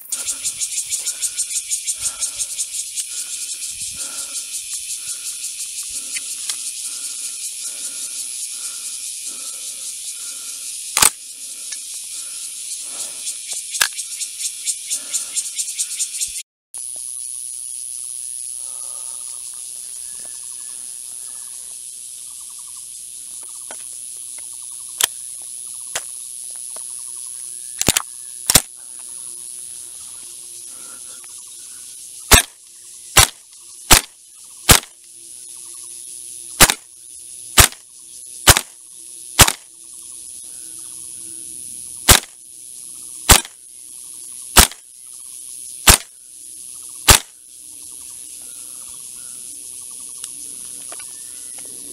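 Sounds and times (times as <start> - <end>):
airsoft rifle shots: 11.0 - 11.2, 32.3 - 32.6, 33.2 - 34.1, 34.7 - 34.9, 36.6 - 36.8, 37.6 - 37.8, 38.4 - 38.8, 39.4 - 39.7, 42.1 - 42.4, 43.3 - 43.6, 44.6 - 44.8, 45.8 - 46.1, 47.1 - 47.3.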